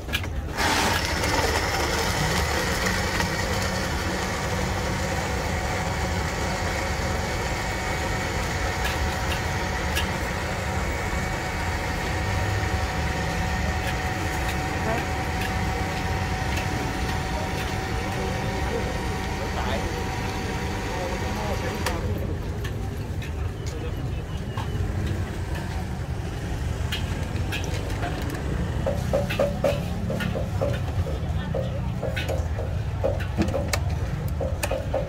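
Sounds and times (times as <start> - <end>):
blender contents churning: 0.5 - 22.1
blender motor whine: 0.5 - 22.1.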